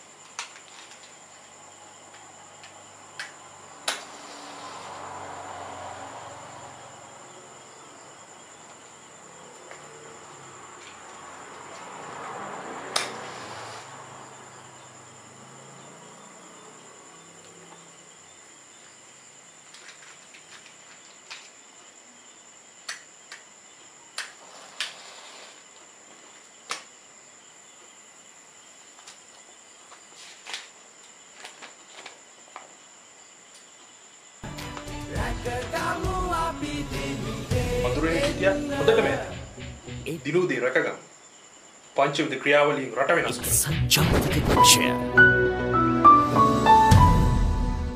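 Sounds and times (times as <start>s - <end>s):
small objects clicking and scraping: 0.3s - 1.2s.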